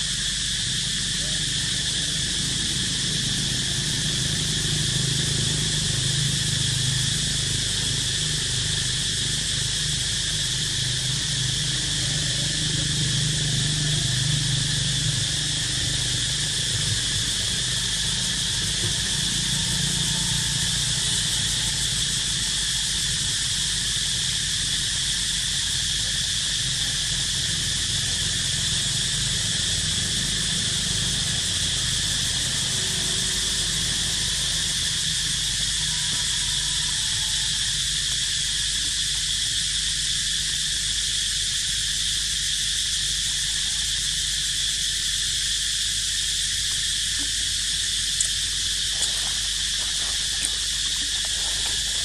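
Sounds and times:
insect chorus: 0.0 - 52.0.

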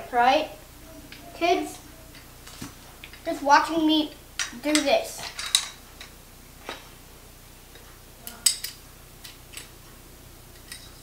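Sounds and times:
plastic parts clicking and knocking: 4.4 - 6.1.

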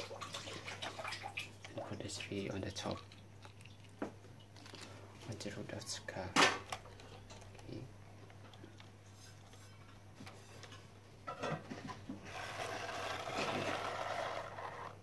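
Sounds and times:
toy truck rolling on tiled floor: 12.3 - 15.0.

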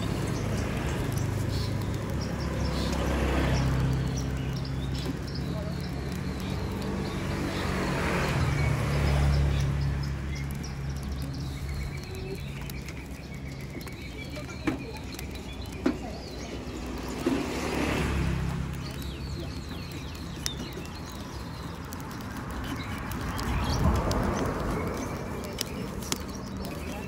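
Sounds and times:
birds chirping: 0.0 - 27.0
passing vehicle engines hum: 0.0 - 27.0.

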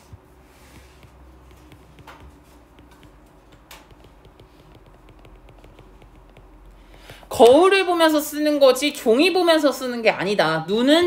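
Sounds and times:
stylus tapping on glass screen: 0.7 - 7.7.

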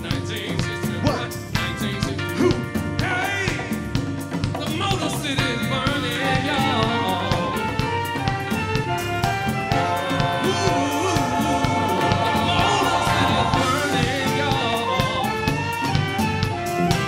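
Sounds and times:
live rock band playing: 0.0 - 17.0
people singing: 5.6 - 7.8, 9.7 - 15.8.

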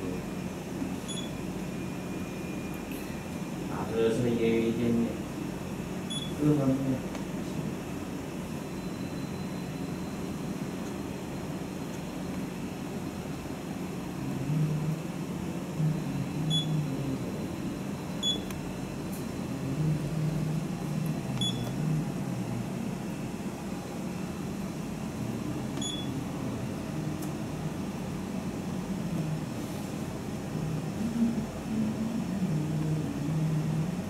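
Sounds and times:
short high beeps: 1.1 - 1.4, 6.1 - 6.4, 21.4 - 21.7, 25.8 - 26.1.

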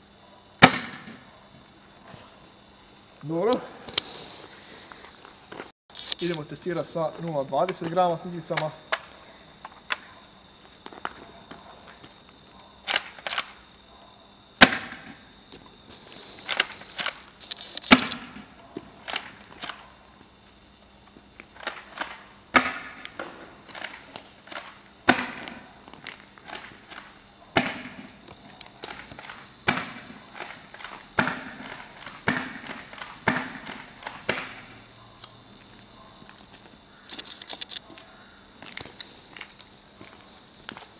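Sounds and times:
airsoft shotgun racking and firing: 12.8 - 13.6, 16.4 - 18.4, 19.0 - 19.8, 21.6 - 28.0, 28.6 - 34.7.

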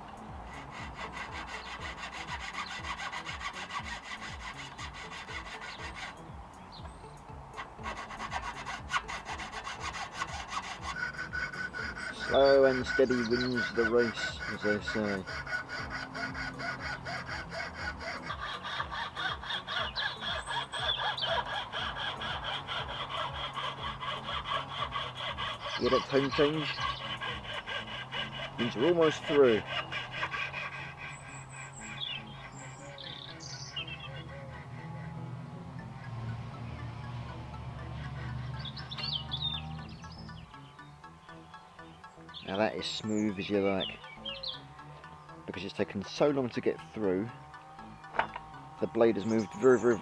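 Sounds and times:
fretsaw rasping through wood: 0.0 - 50.0.

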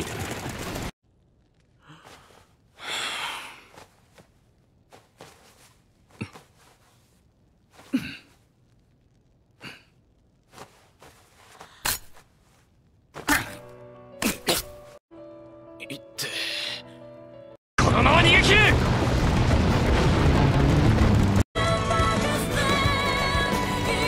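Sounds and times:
breaths sighs and gasps: 1.8 - 4.2, 9.6 - 12.2.

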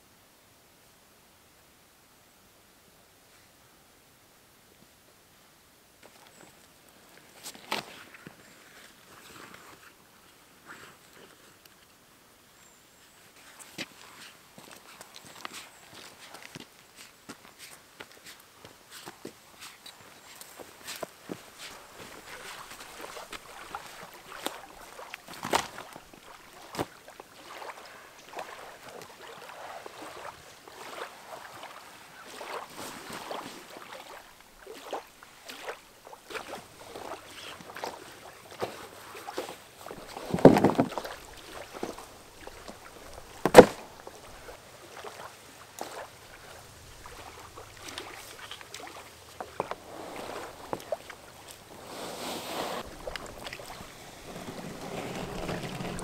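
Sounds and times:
footsteps on sand: 13.4 - 34.1
gear and paddle handling: 36.3 - 44.5, 45.8 - 56.0
dull thump: 40.3 - 41.0, 43.4 - 43.9.

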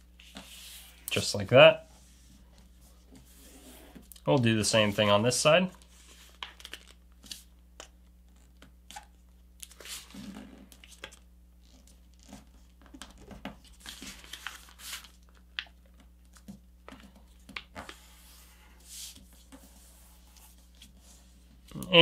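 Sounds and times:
paper rustling and crinkling: 9.7 - 21.0.

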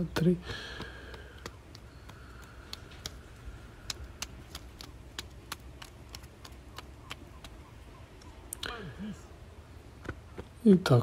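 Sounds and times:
hand tapping on legs: 0.1 - 7.7.

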